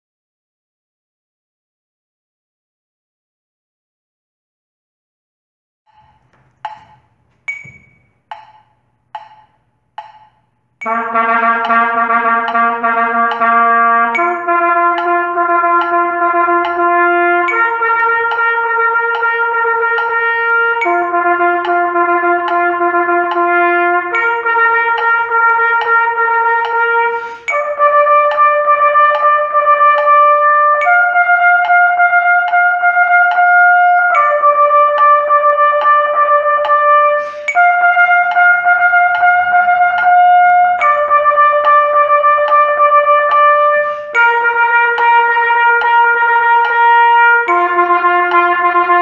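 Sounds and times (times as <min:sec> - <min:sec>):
trumpet playing tongued notes: 0:10.8 - 0:49.0.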